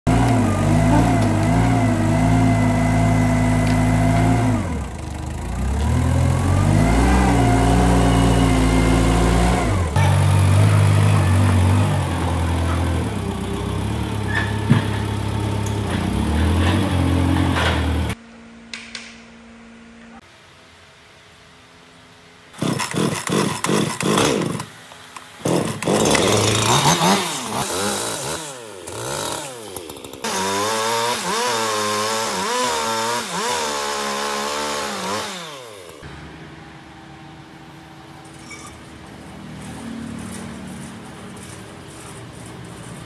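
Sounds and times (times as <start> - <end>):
engine changing speed: 0.1 - 18.2.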